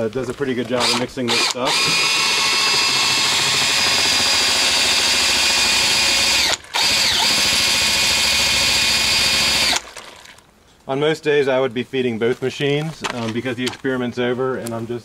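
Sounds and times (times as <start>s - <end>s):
mixer churning slurry: 0.7s - 10.4s
drill motor whine: 0.8s - 10.3s.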